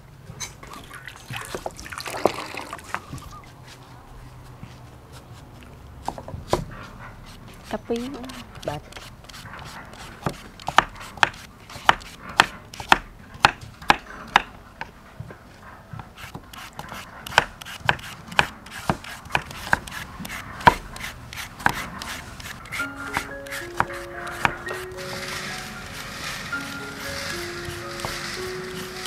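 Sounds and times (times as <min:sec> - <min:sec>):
knife chopping on wooden board: 0:08.0 - 0:14.5, 0:16.3 - 0:24.8.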